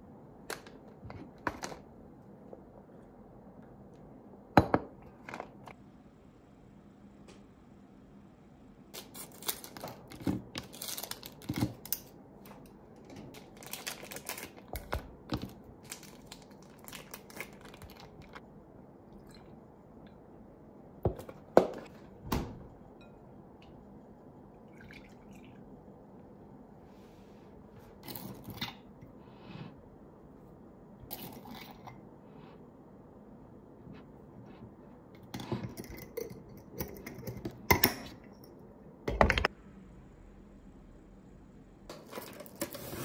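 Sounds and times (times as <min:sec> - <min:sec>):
plastic wrappers crinkling: 0:09.0 - 0:18.4
milk pouring: 0:24.6 - 0:25.7.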